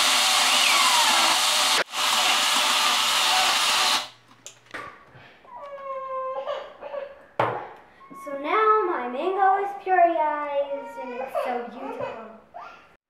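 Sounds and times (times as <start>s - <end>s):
blender motor running: 0.0s - 4.1s.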